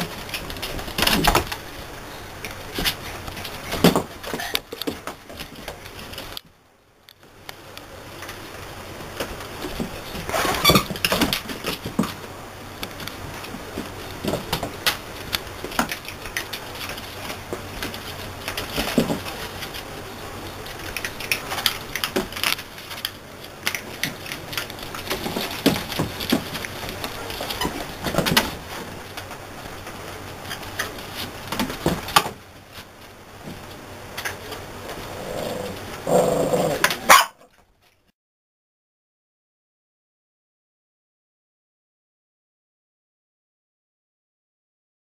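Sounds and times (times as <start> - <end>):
puppies scuffling on a blanket: 0.0 - 6.4, 8.1 - 33.8.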